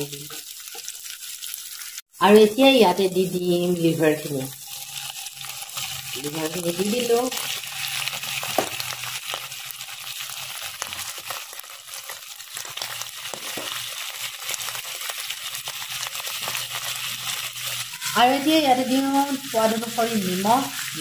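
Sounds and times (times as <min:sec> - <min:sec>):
liver sizzling in hot oil: 0:00.0 - 0:21.0
pieces dropped into pan: 0:08.5 - 0:08.9, 0:13.3 - 0:13.8.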